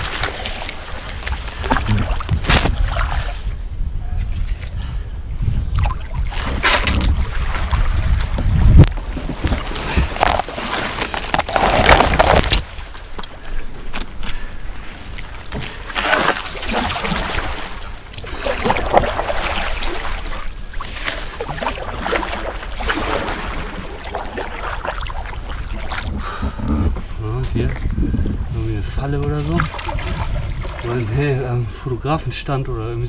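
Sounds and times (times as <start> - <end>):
paddle splashing in water: 0.0 - 3.5, 5.8 - 13.6, 14.8 - 27.2, 29.3 - 31.1
wind rumble on microphone: 0.0 - 15.8, 16.7 - 33.0.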